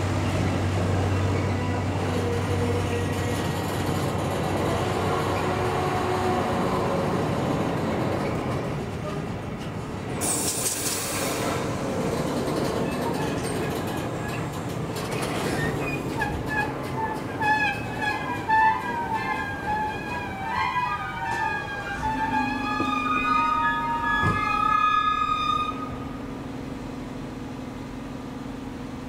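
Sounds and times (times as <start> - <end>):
train wheels rumbling on rails: 0.0 - 29.0
high-pitched wheel squeal: 15.4 - 26.2.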